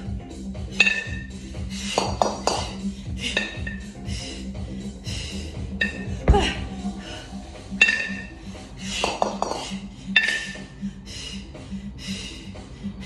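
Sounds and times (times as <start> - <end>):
kettlebells clanking: 0.8 - 1.3, 1.9 - 4.0, 5.8 - 6.6, 7.7 - 8.4, 9.0 - 10.7.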